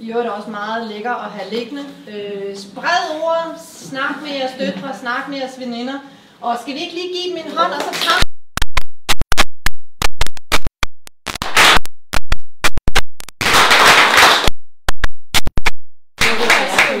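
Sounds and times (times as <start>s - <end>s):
audience clapping: 7.7s - 8.2s, 13.4s - 14.5s, 16.2s - 17.0s.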